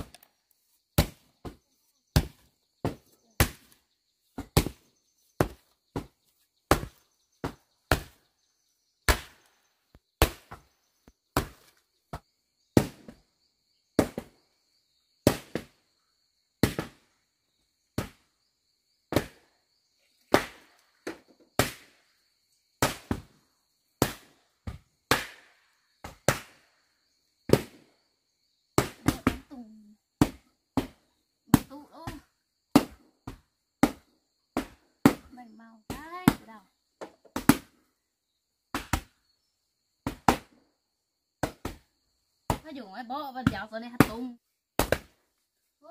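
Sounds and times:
wooden board thudding on mud: 2.2 - 4.8, 5.4 - 8.2.

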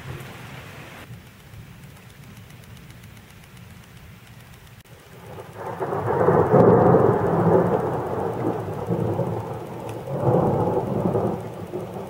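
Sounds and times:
thunder rumbling: 4.9 - 12.0.

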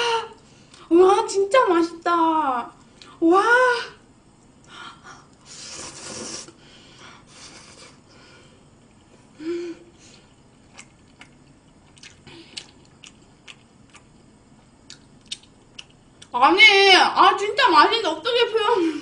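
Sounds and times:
woman slurping noodles: 5.5 - 6.6
light chewing clicks: 10.6 - 16.4.

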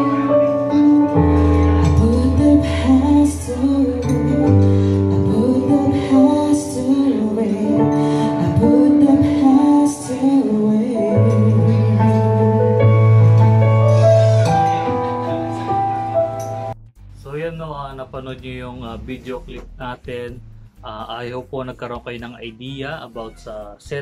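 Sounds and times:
instrumental backing with bass: 0.0 - 24.0
woman singing into microphone: 1.6 - 12.8.

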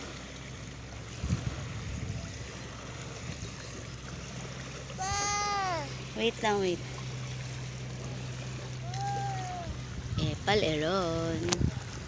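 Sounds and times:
sea surf: 0.0 - 12.0
wind: 0.0 - 12.0
high-pitched voice calling: 5.0 - 5.9, 8.8 - 9.8.

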